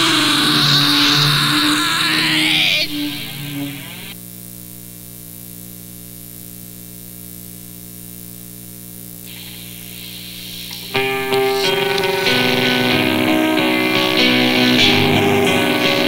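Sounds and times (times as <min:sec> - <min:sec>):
electrical hum: 0:00.0 - 0:15.9
tape hiss: 0:00.0 - 0:16.0.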